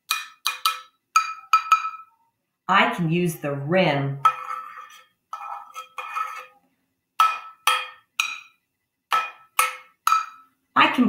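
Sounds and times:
pencil striking metal saucepan: 0.0s - 2.2s, 4.2s - 6.6s, 7.2s - 10.6s.

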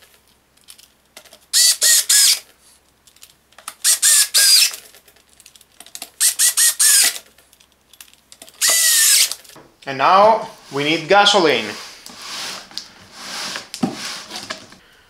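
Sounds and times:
cordless screwdriver whining: 1.6s - 2.5s, 3.8s - 4.8s, 6.2s - 7.2s, 8.6s - 9.4s.

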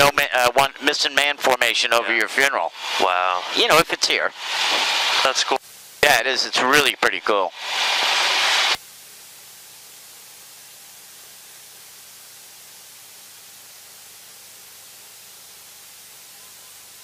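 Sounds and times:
faint intercom hiss: 0.0s - 8.8s
loud rushing noise through headset: 2.6s - 5.6s, 7.4s - 8.8s.

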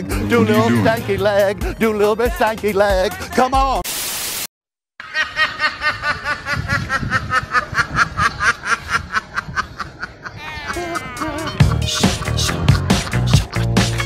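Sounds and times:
static hiss: 3.9s - 4.5s
ducks quacking rapidly: 9.8s - 14.0s.

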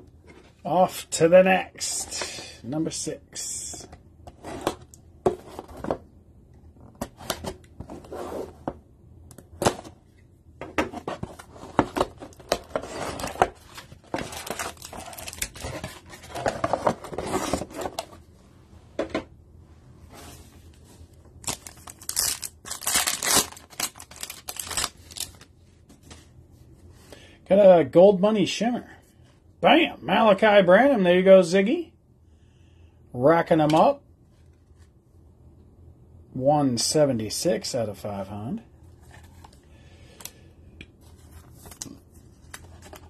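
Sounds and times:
foil packs tearing: 21.4s - 25.3s.

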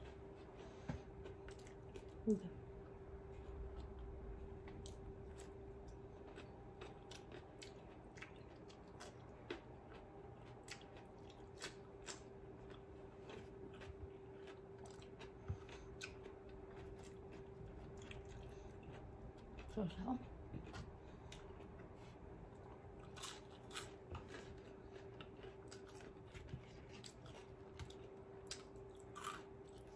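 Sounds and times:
faint steady hum: 0.0s - 29.9s
crunching cucumber: 4.8s - 19.8s, 22.6s - 29.9s.

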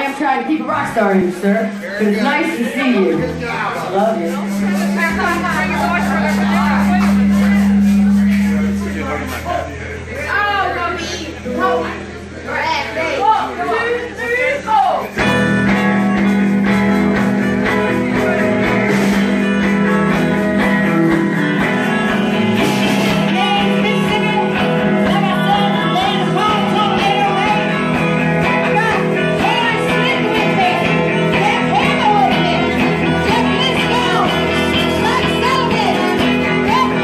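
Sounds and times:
drums: 0.0s - 37.0s
live band playing: 0.0s - 37.0s
person singing: 21.6s - 37.0s.

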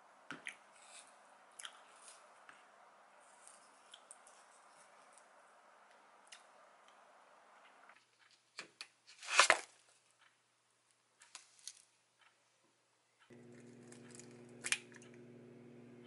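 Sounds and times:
steady low hum: 13.3s - 16.0s.

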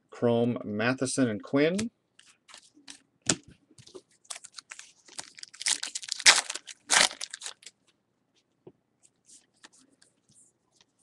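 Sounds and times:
cards being handled: 1.8s - 7.7s
card pack wrapper crinkling: 4.3s - 7.8s.

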